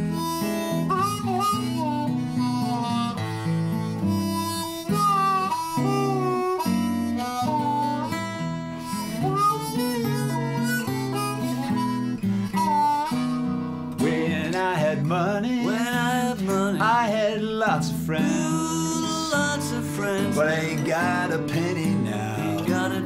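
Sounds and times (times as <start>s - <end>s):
acoustic guitar: 0.0s - 23.0s
blues harmonica: 0.0s - 23.0s
man's voice: 14.0s - 23.0s.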